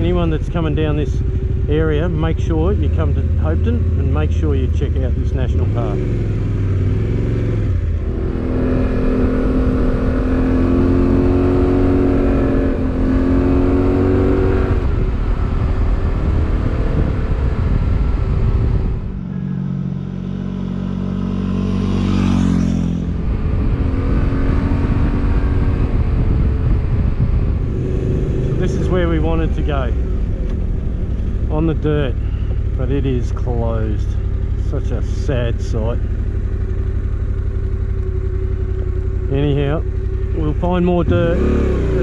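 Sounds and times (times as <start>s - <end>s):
motorcycle engine accelerating: 0.0s - 42.0s
wind rush: 7.6s - 20.3s, 21.7s - 32.8s.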